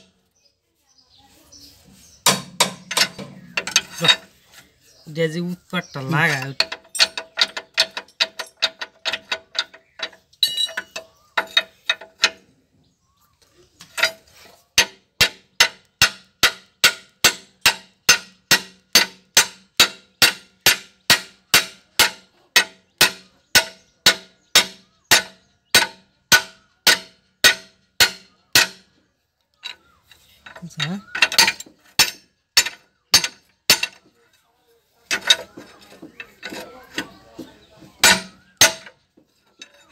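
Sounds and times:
ringing metal clicks: 2.7 - 4.3, 5.8 - 12.5, 29.5 - 34.1, 35.1 - 39.9.

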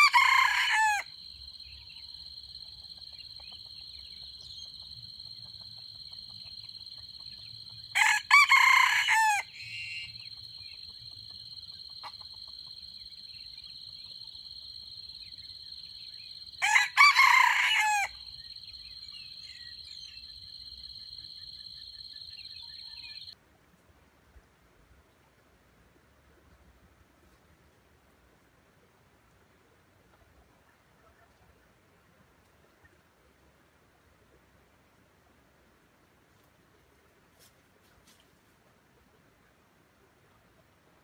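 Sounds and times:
rooster crowing: 0.0 - 1.1, 7.9 - 10.2, 16.6 - 18.3.

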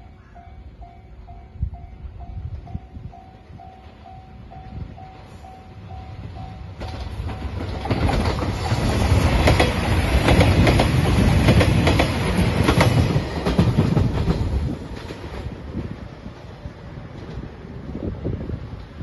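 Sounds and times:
level-crossing bell dinging: 0.0 - 6.8
diesel train passing: 0.0 - 19.0
train wheels clacking over rail joints: 6.8 - 15.6.

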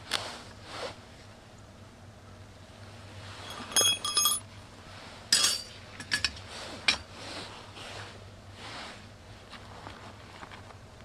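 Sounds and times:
metal clinking: 3.4 - 4.5, 5.3 - 7.0.

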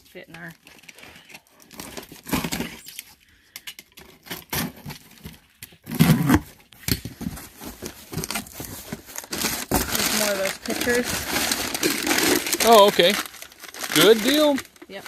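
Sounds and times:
tape tearing: 1.6 - 3.1, 3.9 - 15.0
cardboard scraping: 5.8 - 14.5.

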